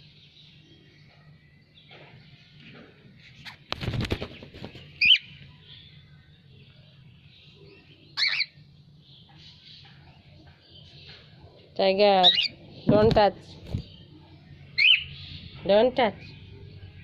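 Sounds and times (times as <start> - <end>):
faint bird chirping: 0.0 - 17.0
cockatiel wings fluttering: 3.5 - 5.0
cockatiel calls: 8.2 - 8.5.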